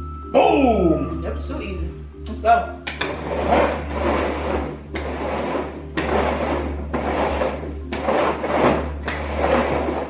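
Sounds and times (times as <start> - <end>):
bowls scraping on wooden table: 2.9 - 10.0.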